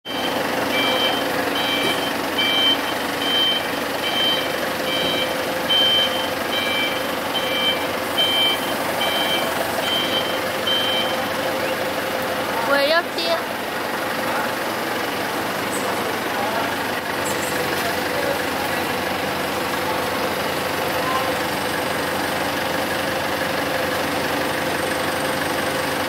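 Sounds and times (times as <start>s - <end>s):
forklift engine running: 0.0s - 26.0s
two-tone reversing alarm beeping: 0.1s - 11.9s.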